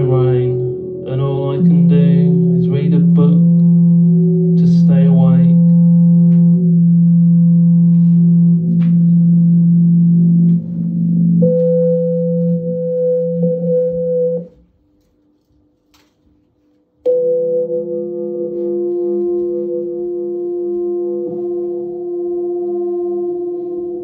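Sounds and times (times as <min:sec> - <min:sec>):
voice phrase: 0:00.0 - 0:03.6
low drone with overtones: 0:00.0 - 0:14.7, 0:17.0 - 0:24.0
higher held tone: 0:00.0 - 0:14.8, 0:17.0 - 0:24.0.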